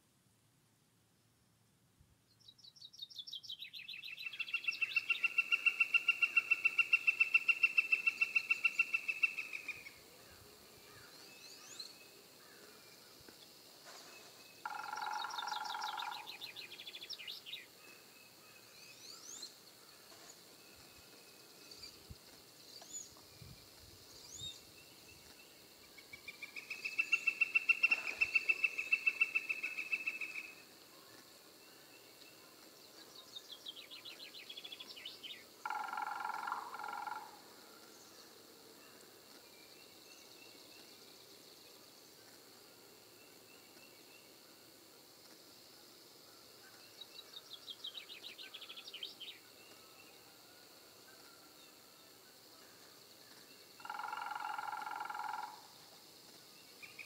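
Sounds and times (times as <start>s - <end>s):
small birds chirping: 2.3s - 10.0s
woodpecker wik call: 4.2s - 10.0s, 14.6s - 17.4s, 26.0s - 30.6s, 35.6s - 37.5s, 53.8s - 55.7s.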